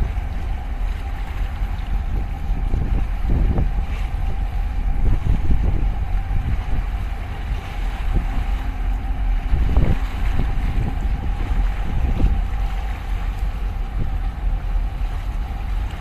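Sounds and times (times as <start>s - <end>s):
faint ship hum: 0.0s - 16.0s
wind buffeting microphone: 0.0s - 16.0s.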